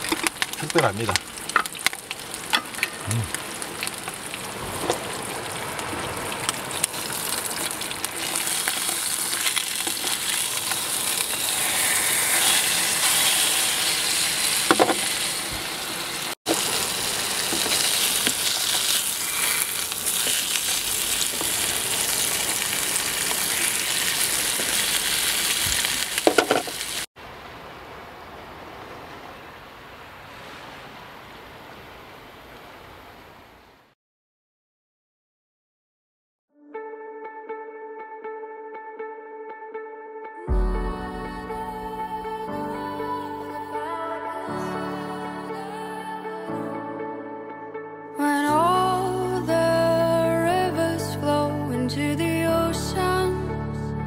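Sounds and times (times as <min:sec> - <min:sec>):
food sizzling in a pan: 0:06.9 - 0:27.1.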